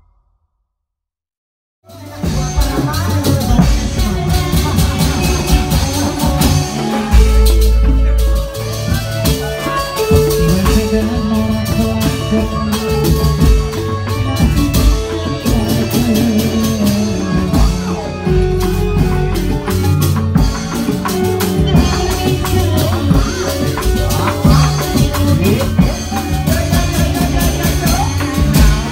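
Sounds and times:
drums and percussion: 1.9s - 28.9s
electric keyboard melody: 1.9s - 28.9s.

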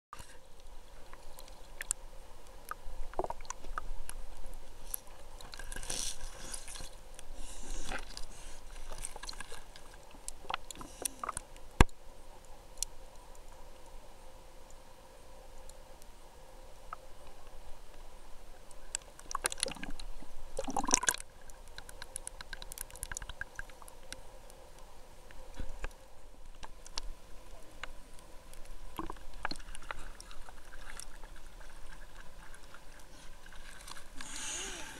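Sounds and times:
small clicks and crackles: 0.2s - 14.0s, 14.6s - 34.9s
muffled underwater water sloshing: 25.3s - 34.9s.

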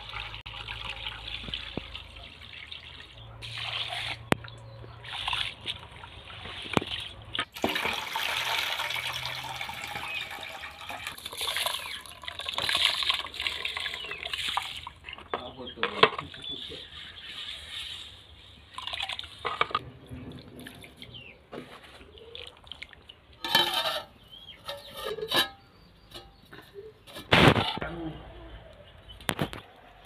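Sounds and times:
water pouring and sloshing: 0.0s - 25.5s
rice rubbed in water: 16.4s - 19.5s.

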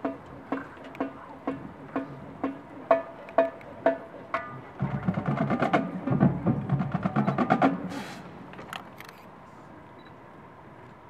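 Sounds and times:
fast drum strokes: 0.0s - 8.4s
short hissing burst: 7.8s - 8.4s.

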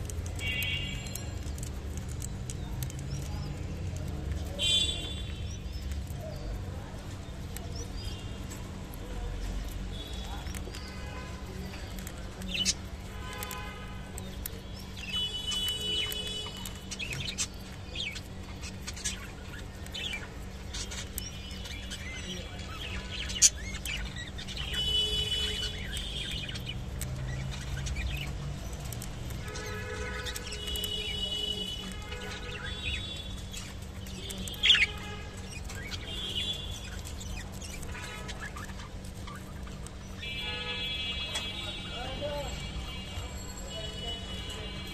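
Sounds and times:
budgerigars chirping: 14.9s - 42.4s.

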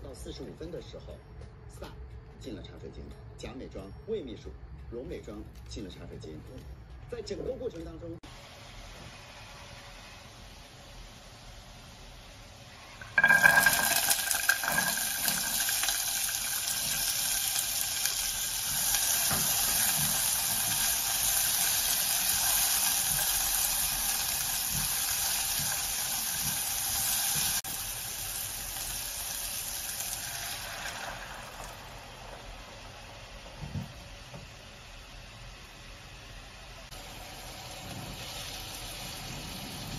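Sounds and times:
vegetables sizzling in hot oil: 8.3s - 39.9s.

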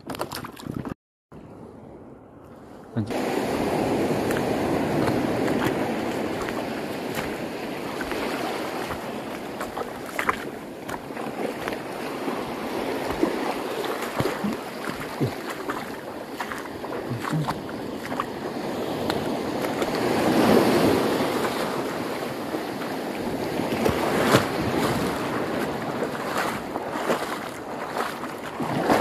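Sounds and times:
short splashes and clicks: 0.0s - 1.0s, 4.1s - 12.1s, 12.8s - 18.4s, 19.0s - 21.7s, 23.7s - 29.0s
small waves washing: 2.4s - 29.0s.

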